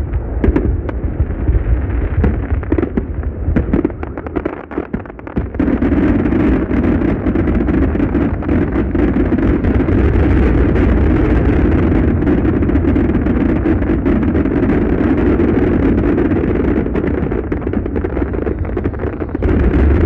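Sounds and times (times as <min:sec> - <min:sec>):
fireworks bursting: 0:00.0 - 0:20.0.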